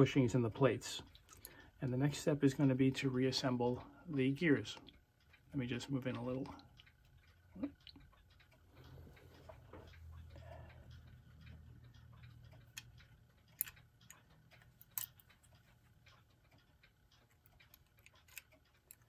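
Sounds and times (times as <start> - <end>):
small metal parts clicking: 12.5 - 19.0.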